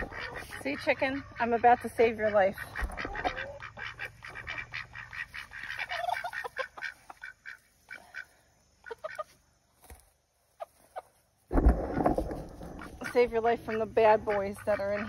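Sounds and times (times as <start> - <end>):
ducks quacking: 0.0 - 9.4, 12.6 - 15.0.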